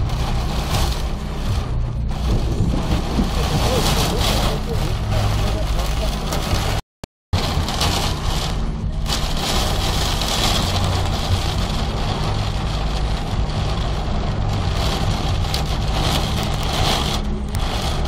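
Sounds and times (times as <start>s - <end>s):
heavy rain beating on a car: 0.0s - 6.8s, 7.4s - 18.0s
steady low rumble: 0.0s - 6.8s, 7.4s - 18.0s
strong wind: 0.0s - 6.8s.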